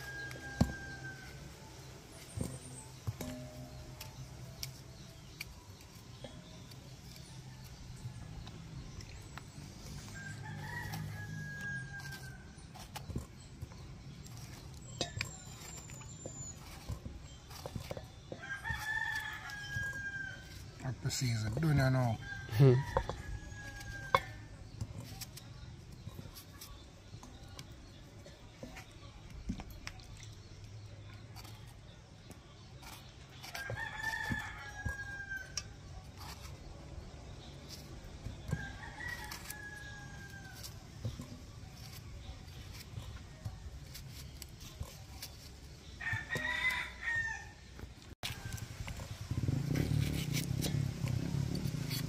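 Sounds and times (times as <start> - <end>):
rooster crowing: 0.0 - 1.5, 10.1 - 12.4, 46.0 - 47.6.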